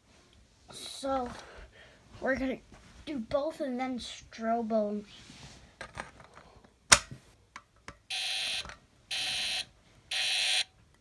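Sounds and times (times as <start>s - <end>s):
fire alarm horn buzzing: 8.1s - 10.7s.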